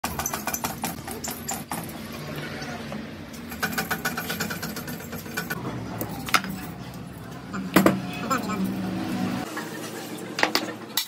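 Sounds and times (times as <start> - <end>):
low workshop hum: 0.0 - 11.0
rapid mechanical rattling: 3.4 - 5.6.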